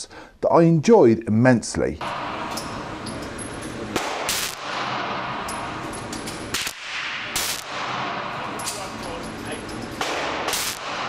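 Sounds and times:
pistol shots indoors: 2.0s - 8.9s, 9.9s - 11.0s.

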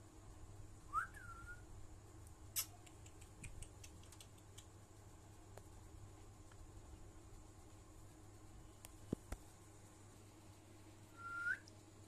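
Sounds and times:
rising and falling whistle: 0.9s - 1.6s, 11.2s - 11.6s
faint ticks: 2.2s - 4.9s.

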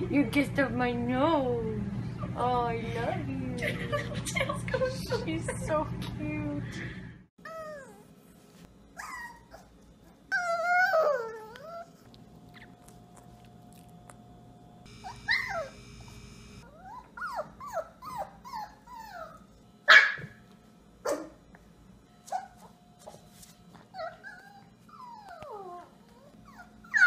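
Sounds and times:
puppy yipping and whining: 9.0s - 12.7s, 14.9s - 15.9s, 16.6s - 20.3s, 23.9s - 27.0s.

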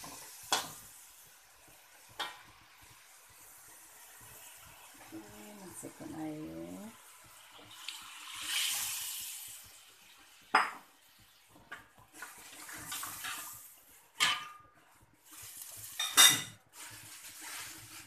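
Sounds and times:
water pouring into a wok: 0.0s - 6.0s, 6.6s - 14.2s, 15.1s - 18.0s
utensils clacking on a wok: 2.1s - 2.5s, 11.7s - 14.8s, 15.7s - 16.7s.

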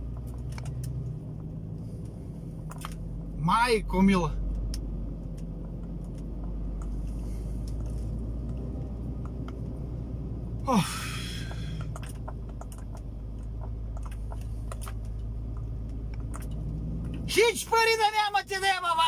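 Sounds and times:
truck engine rumbling: 0.0s - 19.0s
cab rattling: 10.5s - 19.0s.

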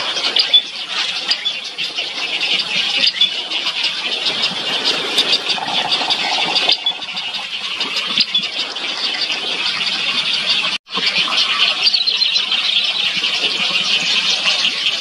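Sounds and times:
egrets chattering and squealing: 1.7s - 10.4s.

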